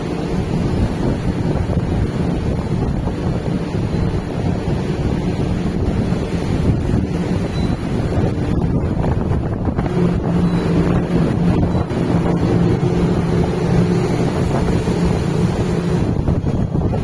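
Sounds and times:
ship engine hum: 0.0s - 17.0s
water rushing along hull: 0.0s - 17.0s
wind buffeting microphone: 0.0s - 17.0s.

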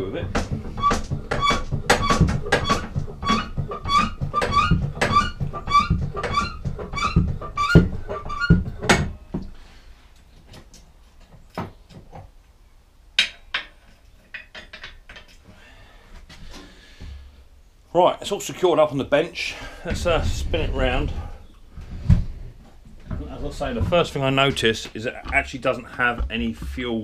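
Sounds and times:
hydraulic lift pumping with squeaks: 0.2s - 9.2s
knocks: 0.2s - 9.5s, 23.0s - 27.0s.

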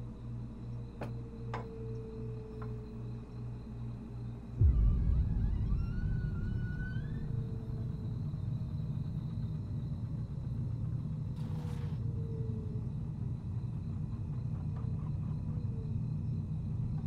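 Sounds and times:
low steady rumble: 0.0s - 17.0s
faint rising squeak: 4.6s - 9.5s.

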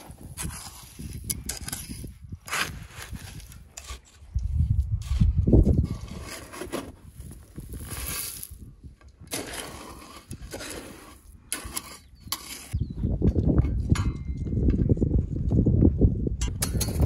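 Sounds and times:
shovel digging into gravel: 0.0s - 12.8s.

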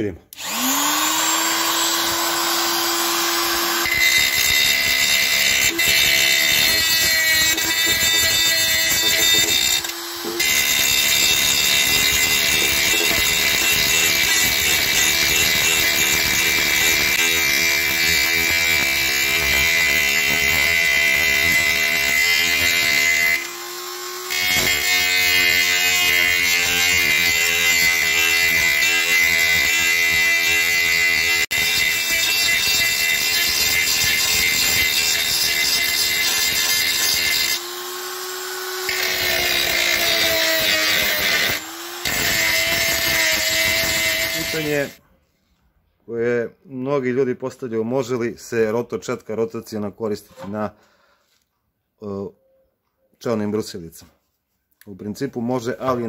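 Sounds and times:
die grinder whining: 0.3s - 45.0s
grinding on sheet metal: 0.5s - 23.5s, 24.3s - 37.7s, 38.3s - 45.0s.

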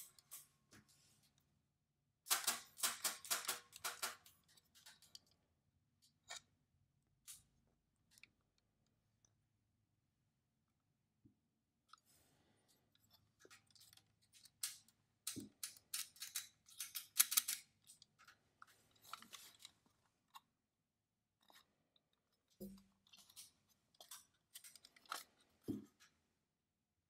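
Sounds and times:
clicks of metal calculator parts: 2.3s - 5.4s, 13.5s - 19.8s, 22.6s - 26.2s.

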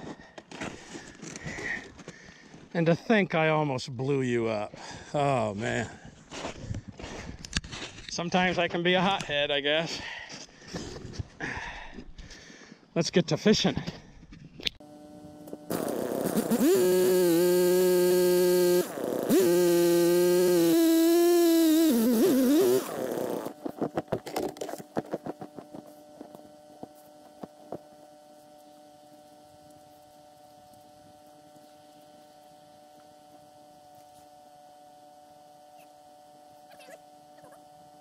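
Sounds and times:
faint steady hum: 0.0s - 38.0s
ice auger engine running: 14.8s - 28.0s.

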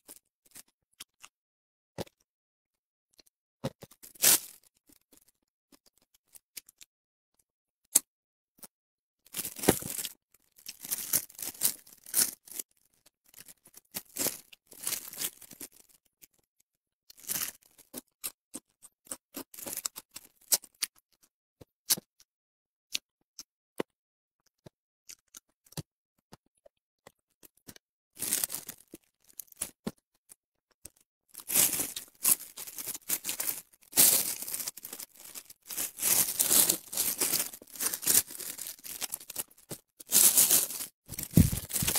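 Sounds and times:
fish crust crackling and tearing: 30.9s - 41.9s.

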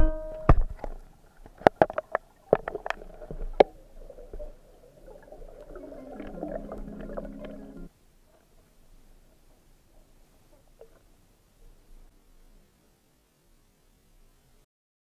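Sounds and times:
low steady hum: 0.0s - 1.6s
underwater knocks and clicks: 0.0s - 4.6s, 5.6s - 7.7s.

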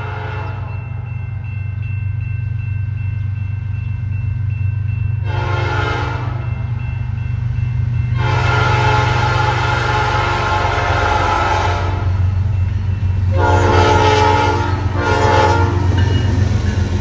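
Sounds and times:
locomotive air horn: 0.0s - 0.7s, 5.2s - 6.5s, 8.2s - 12.2s, 13.3s - 15.9s.

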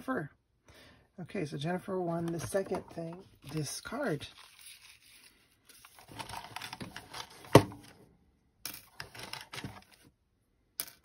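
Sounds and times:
paper rustling: 2.0s - 7.9s.

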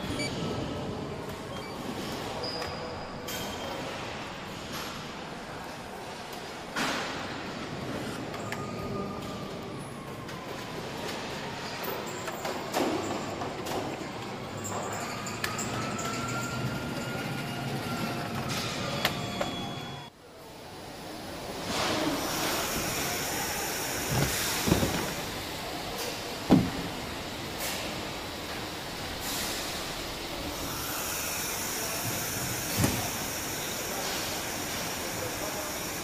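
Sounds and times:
machinery hiss: 20.8s - 36.0s.

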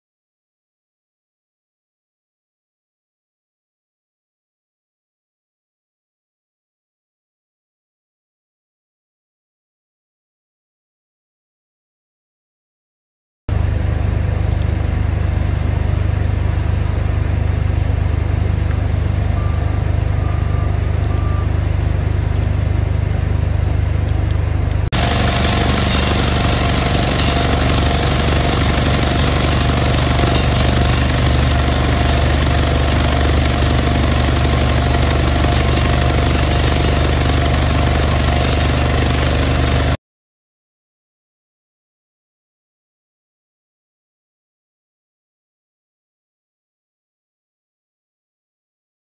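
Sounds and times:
vibrator low pulsing drone: 13.5s - 40.0s.

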